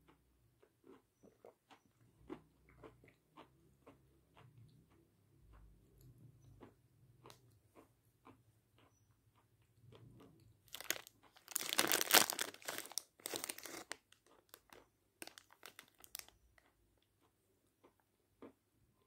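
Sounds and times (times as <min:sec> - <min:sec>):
chalk being chewed: 0:00.1 - 0:18.6
plastic packet crinkling: 0:10.6 - 0:16.4.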